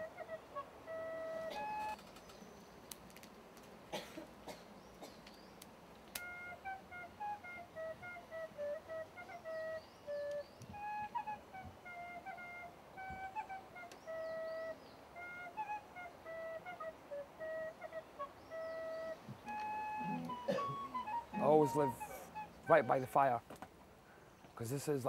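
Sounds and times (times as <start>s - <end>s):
wooden flute melody: 0.0s - 2.6s, 6.0s - 23.4s.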